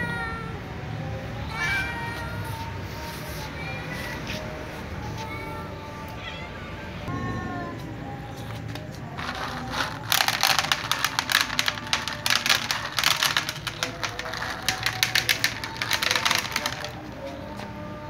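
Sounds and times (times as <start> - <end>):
cats crunching dry kibble: 8.8 - 17.1.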